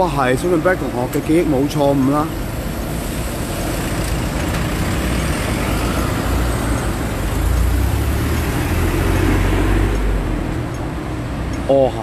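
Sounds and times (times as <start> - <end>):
street traffic noise: 0.0 - 12.0
bus driving past: 2.3 - 11.3.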